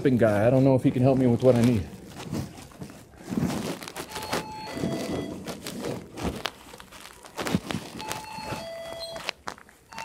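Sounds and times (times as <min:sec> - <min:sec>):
cloth rubbing on microphone: 0:00.0 - 0:08.9
short steady beeps: 0:04.1 - 0:05.4, 0:08.0 - 0:09.2.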